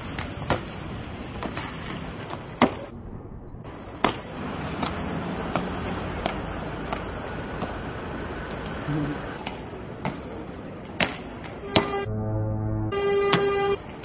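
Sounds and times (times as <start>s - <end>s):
hands and feet slapping paving: 0.0s - 2.9s, 4.0s - 11.9s
outdoor street noise: 0.0s - 14.0s.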